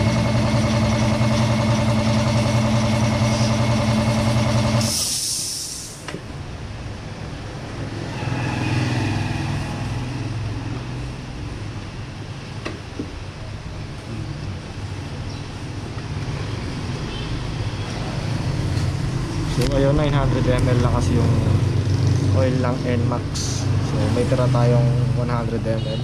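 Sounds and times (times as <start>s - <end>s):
machine humming loudly: 0.0s - 5.1s
quiet workshop sounds: 0.0s - 21.4s
burst of hissing air: 4.8s - 6.1s.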